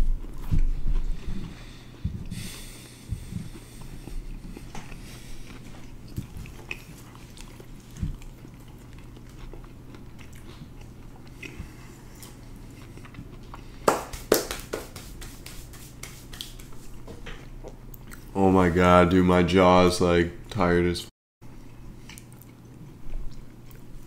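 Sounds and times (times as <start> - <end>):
chewing dry biscuits: 0.0 - 13.8, 17.6 - 18.4, 21.6 - 24.0
mouth clicks and smacks: 13.9 - 16.8.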